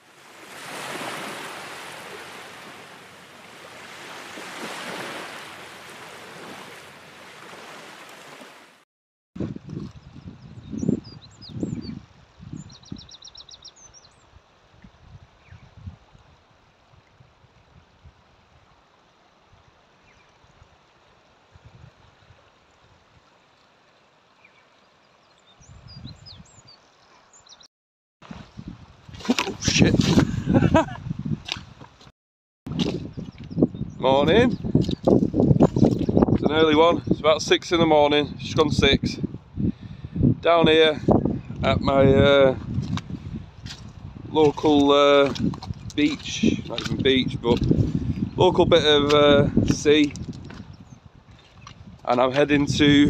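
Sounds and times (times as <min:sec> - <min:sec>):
sea surf over rocks: 0:00.0 - 0:08.8
wind rumbling on microphone: 0:09.4 - 0:18.8, 0:21.5 - 0:23.3, 0:25.6 - 0:26.9, 0:28.2 - 0:32.1, 0:32.7 - 0:53.0
small birds chirping: 0:10.0 - 0:14.3, 0:24.4 - 0:27.7.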